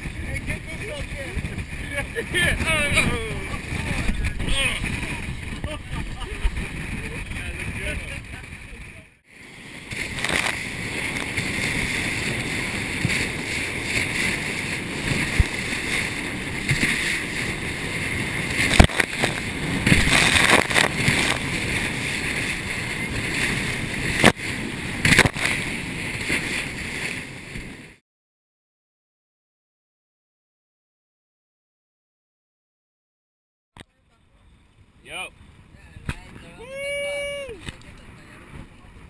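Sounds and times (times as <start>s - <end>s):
motorboat running: 0.0s - 26.6s
wind rushing: 0.0s - 28.0s
water splashing spray: 9.8s - 27.2s.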